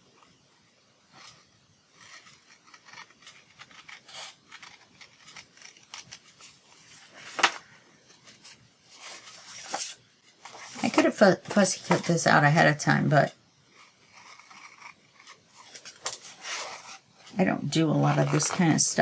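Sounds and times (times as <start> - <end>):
scissors snipping paper: 2.0 - 6.2
paper rustling: 2.0 - 12.2, 14.2 - 19.0.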